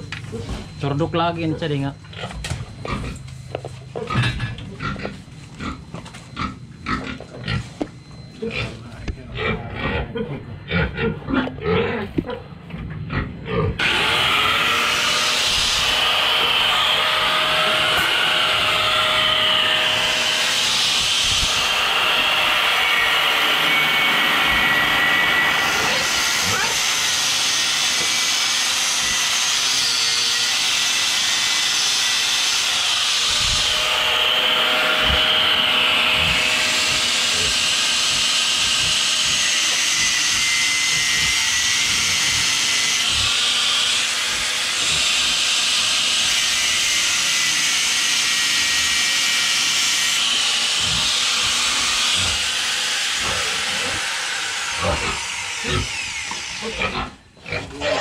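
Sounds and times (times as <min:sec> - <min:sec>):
angle grinder cutting metal pipe: 0:13.8 - 0:58.0.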